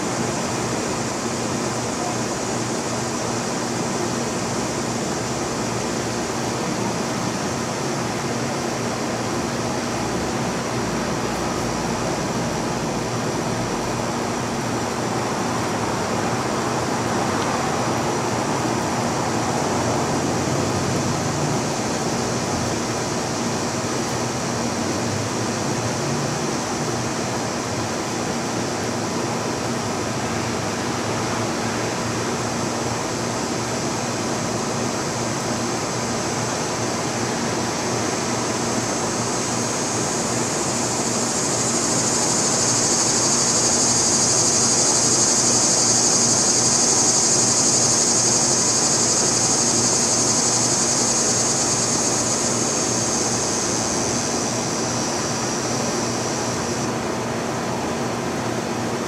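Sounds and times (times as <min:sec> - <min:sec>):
sprinkler spraying water: 0:38.9 - 0:56.9.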